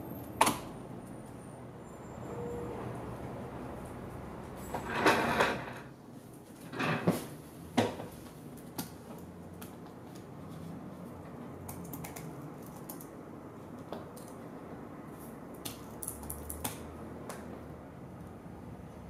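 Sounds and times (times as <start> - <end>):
computer keyboard typing: 11.6 - 13.1.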